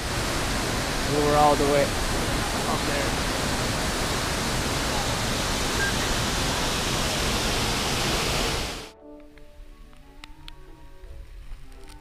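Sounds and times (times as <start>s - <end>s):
waterfall rushing: 0.0s - 8.9s
faint music: 8.8s - 12.0s.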